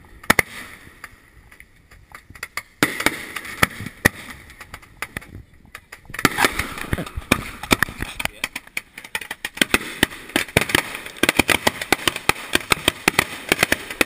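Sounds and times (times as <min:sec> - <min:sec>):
fireworks popping and banging: 0:00.0 - 0:14.0
fireworks hissing and crackling: 0:00.3 - 0:14.0.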